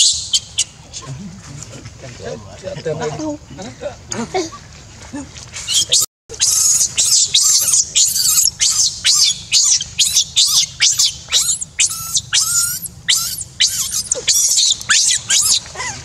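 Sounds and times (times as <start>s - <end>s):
baby monkey screaming: 5.7s - 15.7s.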